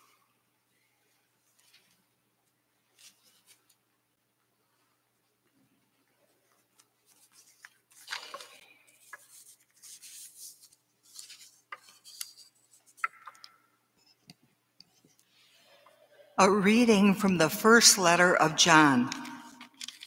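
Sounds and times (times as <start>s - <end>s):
papers rustling: 6.1s - 13.5s, 19.6s - 20.0s
small clicks and knocks: 11.7s - 15.0s.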